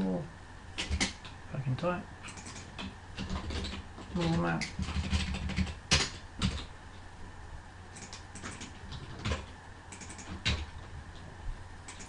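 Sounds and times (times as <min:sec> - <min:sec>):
computer keyboard key clicks: 0:09.3 - 0:10.6.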